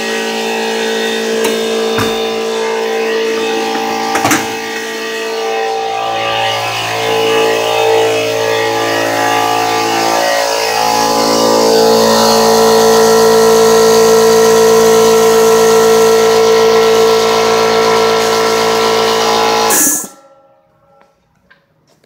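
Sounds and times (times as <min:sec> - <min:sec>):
electric air compressor running: 0:00.0 - 0:20.2.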